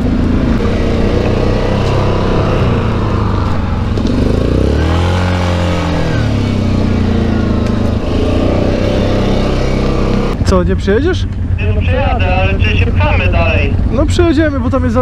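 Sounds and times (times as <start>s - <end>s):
quad engine running: 0.0s - 15.0s.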